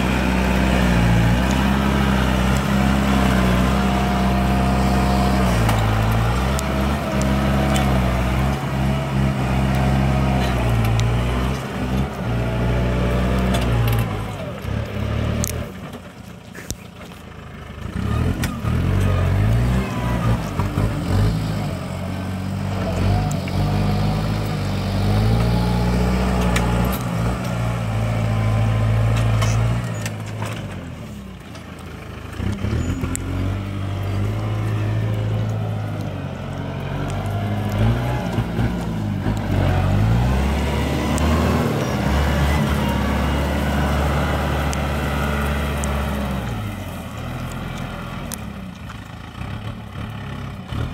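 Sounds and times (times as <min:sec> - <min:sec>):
tractor diesel engine under load: 0:00.0 - 0:50.9.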